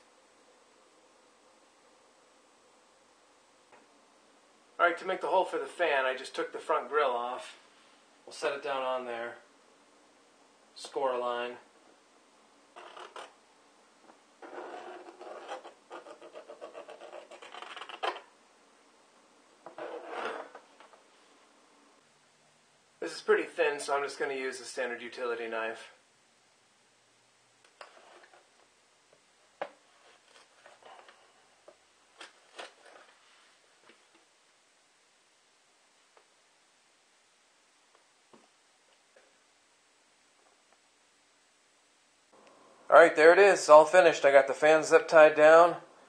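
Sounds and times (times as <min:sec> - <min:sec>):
metal scribe scratching plastic: 0:12.8 - 0:13.4, 0:14.4 - 0:18.3, 0:19.7 - 0:20.7, 0:27.8 - 0:28.5.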